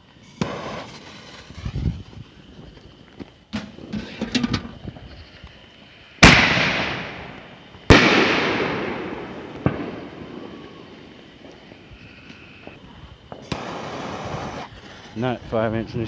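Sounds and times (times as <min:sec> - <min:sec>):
shell bursts booming with echo: 0:06.2 - 0:07.3, 0:07.9 - 0:10.5
sharp crack: 0:06.2 - 0:11.6.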